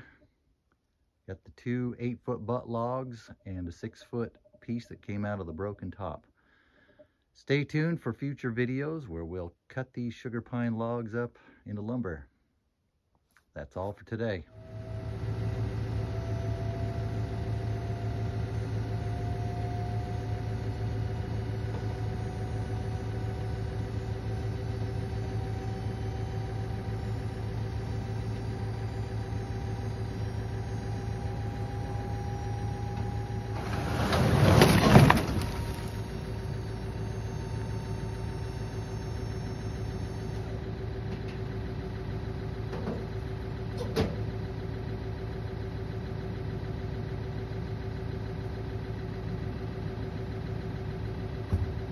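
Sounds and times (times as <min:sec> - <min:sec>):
motor hum: 0:14.5 - 0:44.0
logs crashing onto ground: 0:33.6 - 0:36.4.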